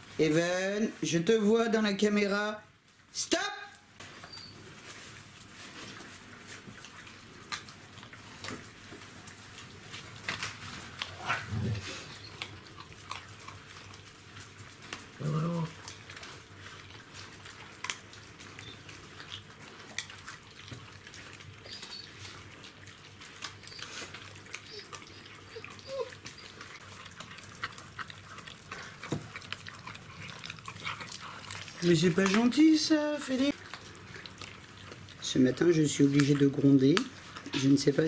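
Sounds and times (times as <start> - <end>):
puppies eating from a bowl: 0.0 - 3.1, 4.0 - 38.0
low dog vocalisation: 11.0 - 14.0, 15.1 - 38.0.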